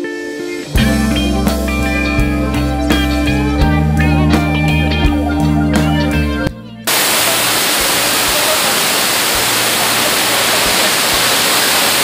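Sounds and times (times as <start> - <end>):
guitar music: 0.0 - 10.6
waterfall rushing: 6.9 - 12.0.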